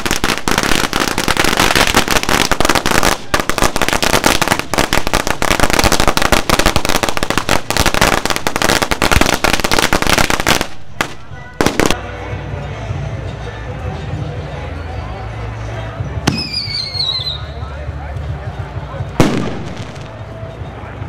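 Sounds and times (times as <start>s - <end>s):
firecrackers crackling: 0.0s - 12.0s, 19.0s - 20.5s.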